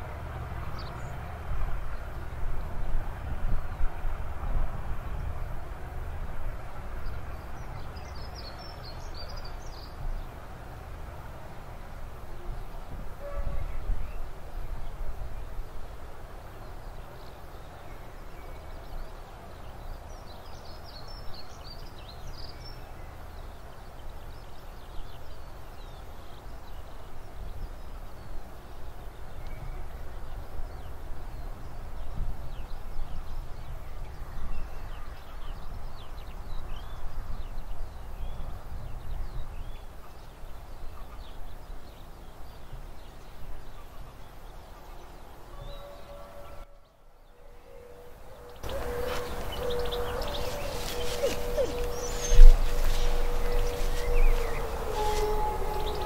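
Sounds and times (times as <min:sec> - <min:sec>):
distant diesel locomotive rumble: 0:47.3 - 0:56.0
small birds chirping: 0:47.7 - 0:56.0.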